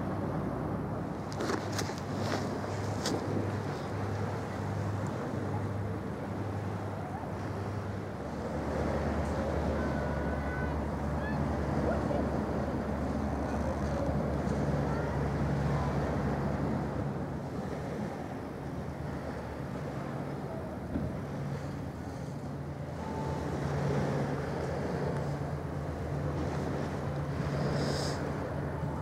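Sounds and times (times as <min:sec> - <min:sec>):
engine hum: 0:00.0 - 0:29.0.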